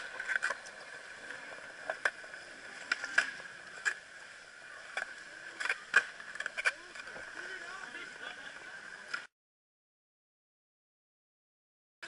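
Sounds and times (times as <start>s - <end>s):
skateboard clacks: 0.0s - 4.1s, 4.8s - 7.4s.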